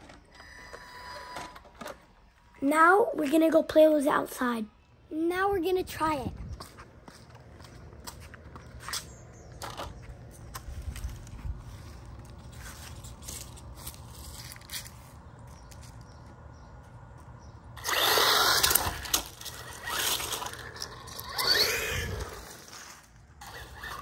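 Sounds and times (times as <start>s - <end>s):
electric motor whining: 17.8s - 24.0s.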